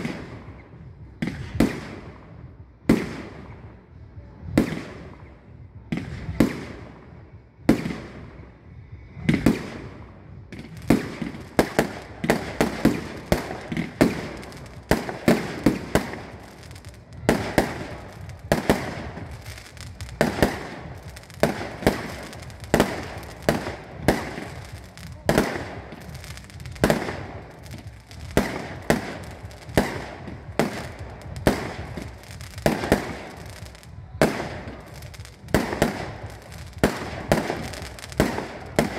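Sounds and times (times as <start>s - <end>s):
fireworks bangs: 0.0s - 3.8s, 9.2s - 38.9s.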